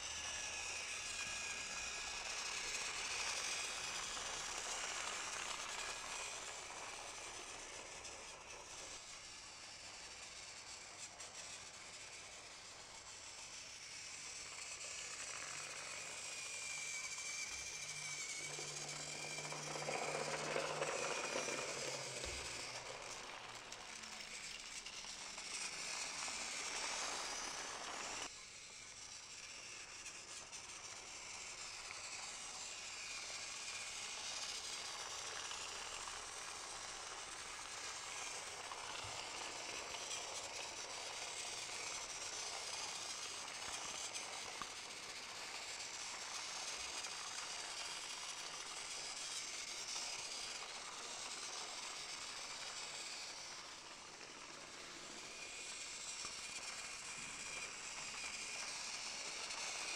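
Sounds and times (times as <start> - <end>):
toy train motors whirring: 0.0 - 59.9
toy train wheels rattling: 0.0 - 59.9.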